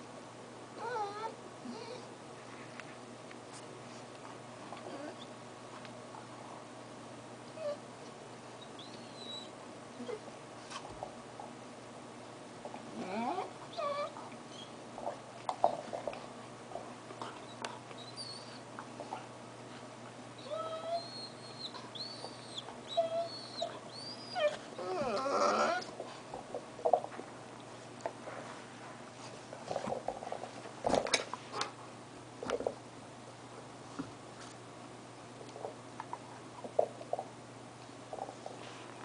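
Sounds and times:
puppy whining: 0.8s - 2.1s, 4.8s - 5.4s, 7.5s - 7.9s, 8.6s - 10.3s, 12.9s - 14.8s, 17.2s - 18.7s, 20.4s - 26.0s.

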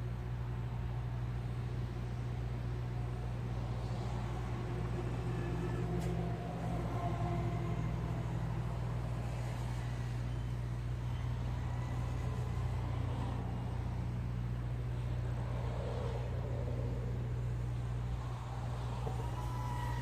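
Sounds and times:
quadcopter motors whining: 3.1s - 14.3s, 15.4s - 20.0s.

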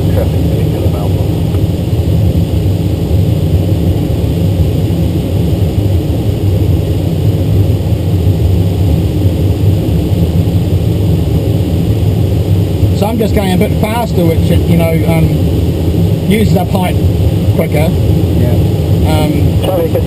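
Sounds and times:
airflow rushing around cockpit: 0.0s - 20.0s.

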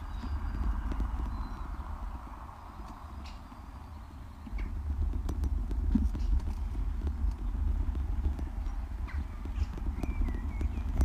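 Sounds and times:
light clicks and knocks: 0.0s - 2.0s, 4.4s - 11.0s.

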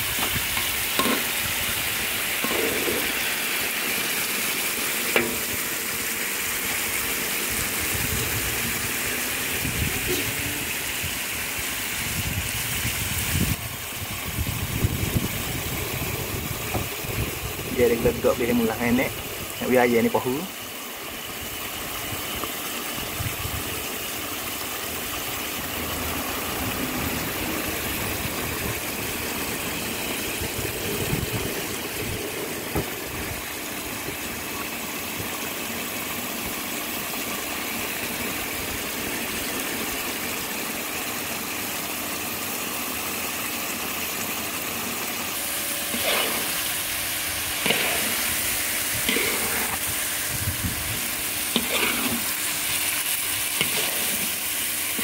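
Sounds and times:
spatula scraping wok: 0.0s - 4.2s, 45.4s - 55.0s
sauce simmering and bubbling: 20.7s - 55.0s.

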